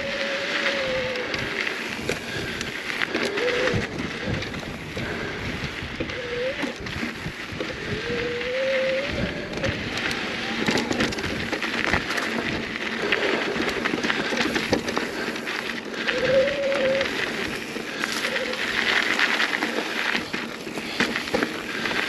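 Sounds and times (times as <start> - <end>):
bike clicks and rattles: 0.0 - 22.0
bike tyres crunching over stones: 0.0 - 22.0
wavering squeal: 16.0 - 17.2, 18.2 - 18.7.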